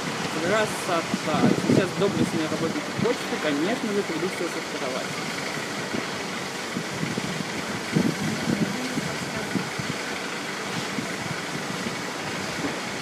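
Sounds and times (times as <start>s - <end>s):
bulldozer engine running: 0.0s - 13.0s.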